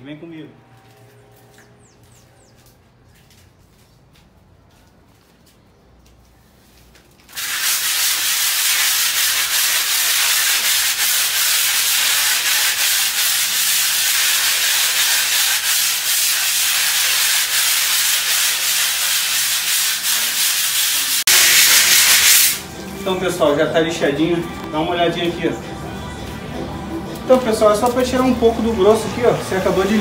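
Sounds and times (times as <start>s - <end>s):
sandpaper rubbing on wall: 7.3s - 22.6s.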